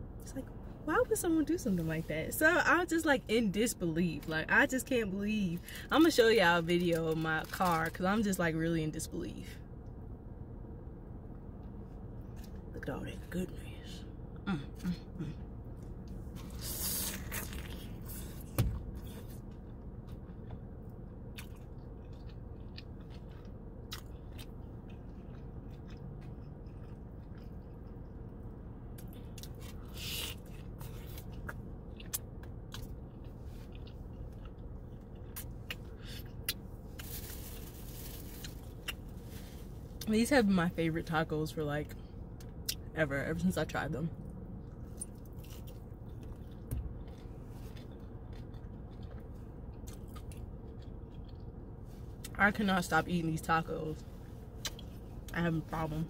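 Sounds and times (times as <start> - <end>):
car cabin hum: 14.5 - 26.9
person chewing with crunches: 15.7 - 40.1, 44.6 - 52.4.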